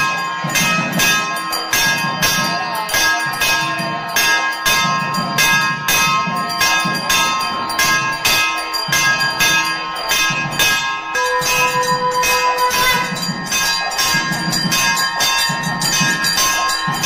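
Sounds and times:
hand bell ringing: 0.0 - 17.0.

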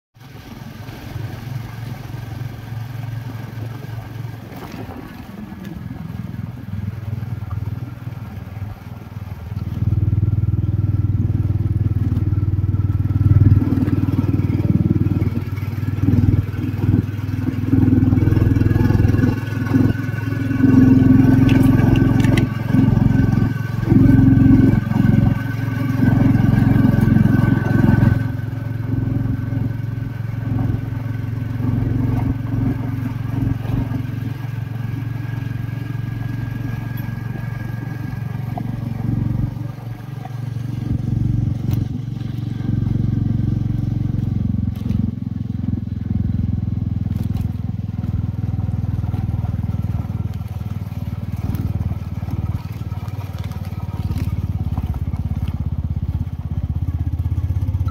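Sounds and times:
motorcycle engine running: 0.2 - 57.9
tyres crunching on gravel: 11.4 - 29.7, 47.0 - 57.8.

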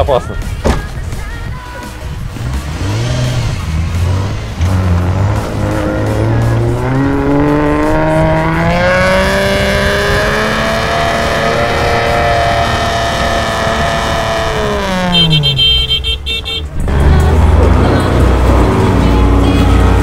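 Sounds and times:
car engine revving hard: 2.4 - 15.7.

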